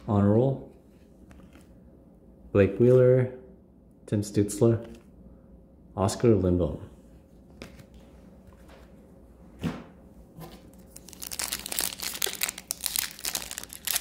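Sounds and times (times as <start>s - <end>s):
foil wrapper crinkling and tearing: 10.8s - 14.0s.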